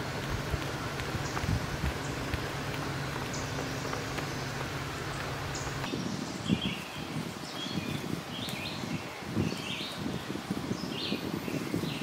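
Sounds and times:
low hum with hiss: 0.0 - 6.7
songbirds chirping: 0.0 - 12.0.

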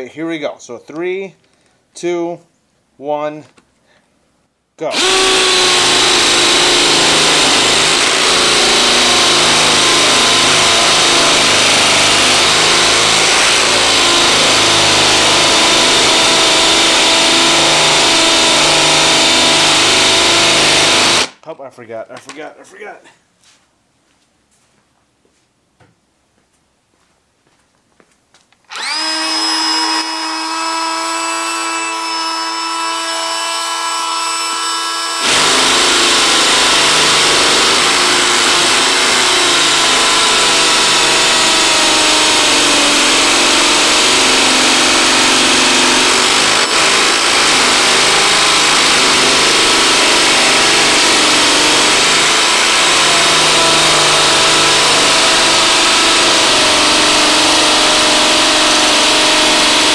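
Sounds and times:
hammer drill grinding into stone: 4.9 - 21.4, 28.7 - 59.9.

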